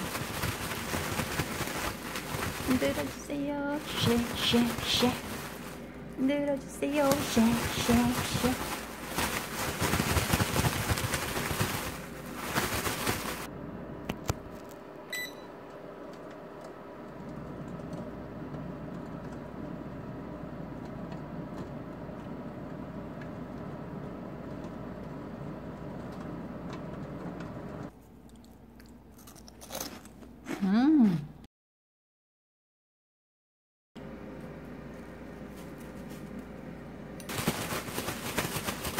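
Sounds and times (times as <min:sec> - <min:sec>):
plastic bag rustling: 0:00.0 - 0:13.5, 0:37.3 - 0:38.9
air fryer humming: 0:00.0 - 0:30.5, 0:34.0 - 0:38.9
single beep: 0:15.1 - 0:15.5.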